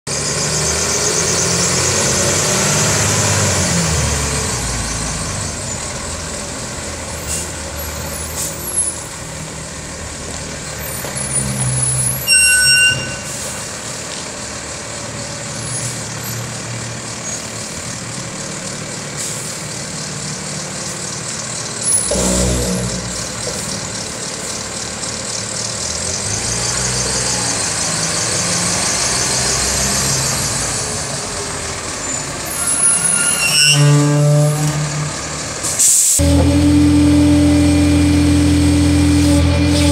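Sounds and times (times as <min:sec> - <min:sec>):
diesel truck engine: 0:00.0 - 0:39.9
high-pitched squeal: 0:10.7 - 0:13.7, 0:21.8 - 0:24.2, 0:32.0 - 0:39.9.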